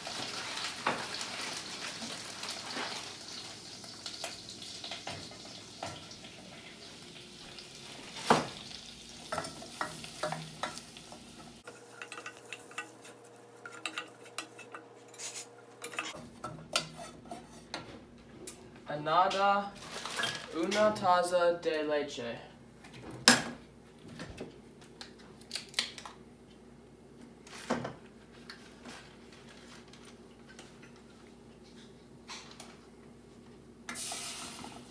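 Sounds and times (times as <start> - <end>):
butter and flour sizzling: 0.0 - 17.6, 33.9 - 34.9
wooden spoon scraping pan: 11.6 - 17.8.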